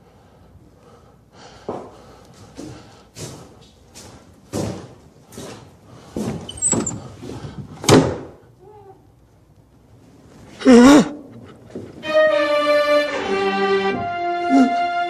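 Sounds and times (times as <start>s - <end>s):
wooden door opening: 6.2s - 8.3s.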